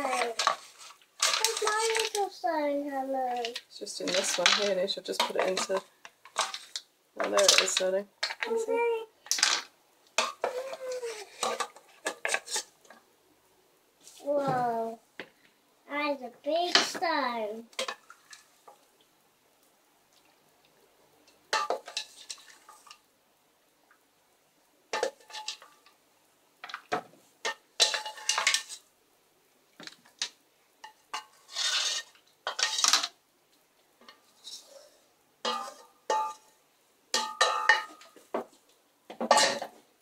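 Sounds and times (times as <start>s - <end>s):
wooden spoon scraping a saucepan: 0.0s - 2.2s, 3.4s - 8.4s, 10.2s - 12.7s, 21.6s - 23.0s, 27.4s - 28.8s, 30.8s - 33.2s, 34.1s - 36.5s.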